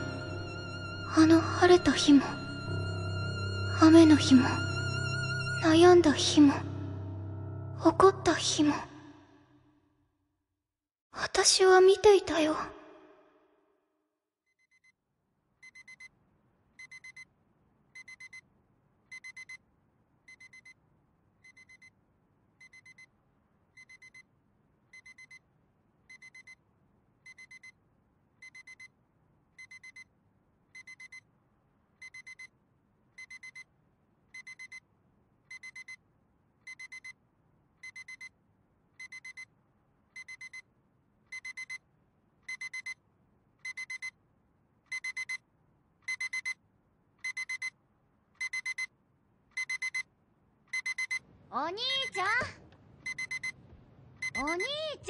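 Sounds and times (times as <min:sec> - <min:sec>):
electronic alarm beeping: 0:50.8 - 0:51.2, 0:53.1 - 0:53.6, 0:54.2 - 0:54.7.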